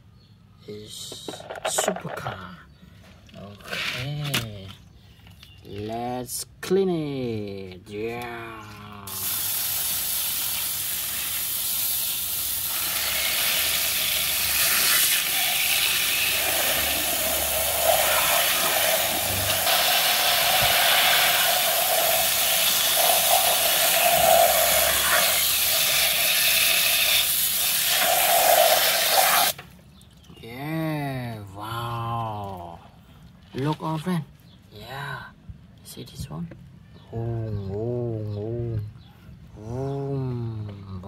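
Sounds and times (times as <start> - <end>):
hose nozzle spraying water: 9.1 - 29.6.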